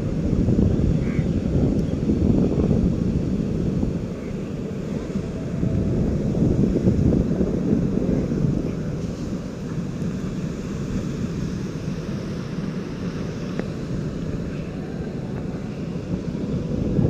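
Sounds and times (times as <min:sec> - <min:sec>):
sea surf breaking on shore: 0:00.0 - 0:17.0
wind buffeting microphone: 0:00.0 - 0:17.0.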